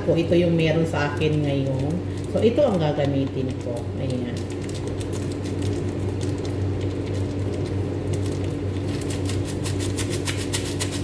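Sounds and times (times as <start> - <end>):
steady low hum: 0.0 - 11.0
paper sachet crinkling: 3.5 - 11.0.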